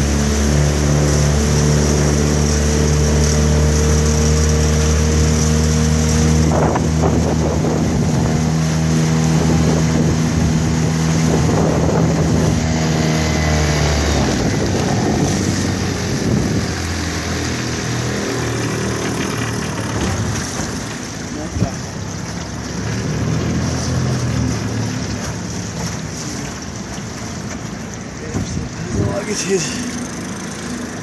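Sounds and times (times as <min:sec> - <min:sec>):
outboard motor running: 0:00.0 - 0:31.0
water churning: 0:00.0 - 0:31.0
wind noise: 0:05.9 - 0:21.0.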